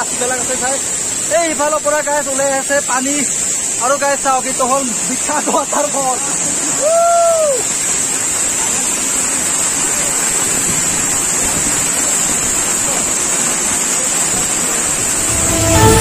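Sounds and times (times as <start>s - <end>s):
waterfall rushing onto rocks: 0.0s - 16.0s.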